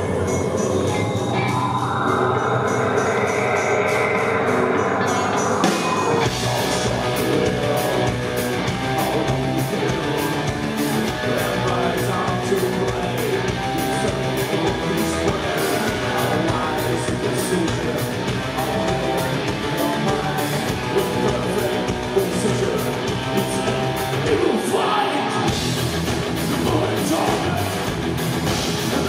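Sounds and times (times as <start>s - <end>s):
distorted electric guitar: 0.0s - 29.0s
live metal band playing: 0.0s - 29.0s
drum kit cymbal beat: 2.7s - 24.5s, 25.5s - 29.0s
bass and kick drum: 25.5s - 29.0s.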